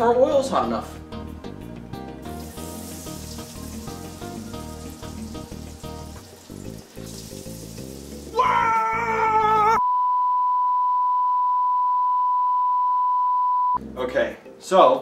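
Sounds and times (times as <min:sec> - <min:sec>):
background music: 0:00.0 - 0:09.8, 0:13.8 - 0:15.0
man crying out in pain: 0:08.3 - 0:09.8.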